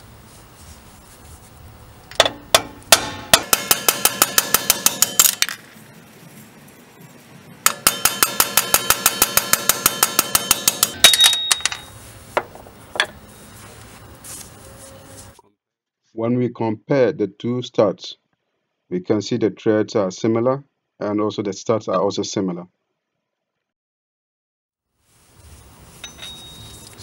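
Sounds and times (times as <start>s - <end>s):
single metal knocks: 2.1s - 5.5s
rapid metal hammering: 2.2s - 5.5s, 7.6s - 11.6s.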